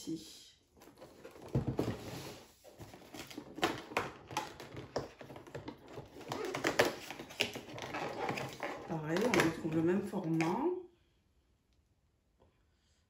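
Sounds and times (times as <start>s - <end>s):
cardboard packaging clicks and taps: 2.8s - 10.6s.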